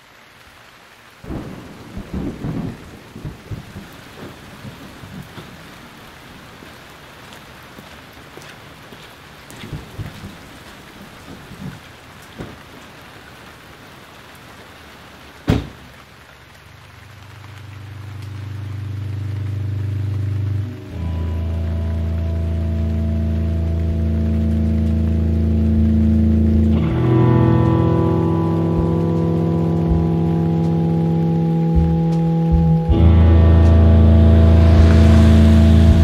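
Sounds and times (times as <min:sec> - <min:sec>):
steady rain: 0:00.0 - 0:36.0
rolling thunder: 0:01.3 - 0:05.3
sharp thunderclap: 0:01.3 - 0:05.3.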